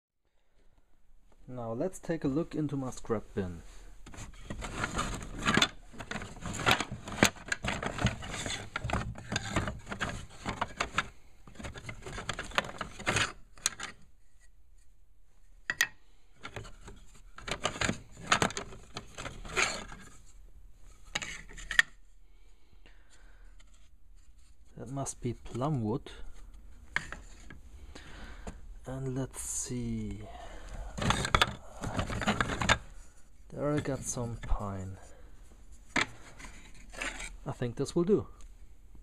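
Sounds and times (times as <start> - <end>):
wooden offcuts clattering: 4.0 - 14.0, 15.7 - 20.3, 20.9 - 22.0, 25.4 - 28.6, 30.0 - 35.0, 35.9 - 37.4.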